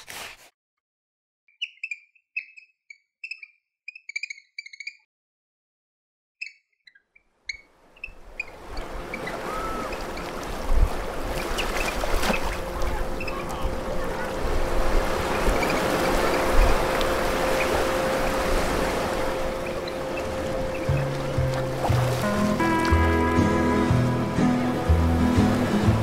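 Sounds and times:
ocean surf rushing: 0:08.3 - 0:26.0.

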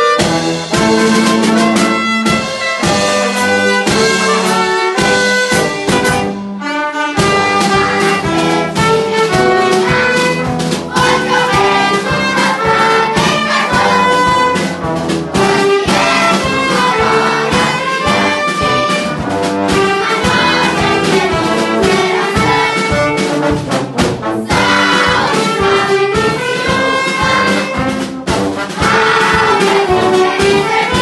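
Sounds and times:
saxophones: 0:00.0 - 0:31.0
steady drum beat: 0:00.0 - 0:31.0
trombone: 0:00.0 - 0:31.0
trumpet: 0:00.0 - 0:31.0.

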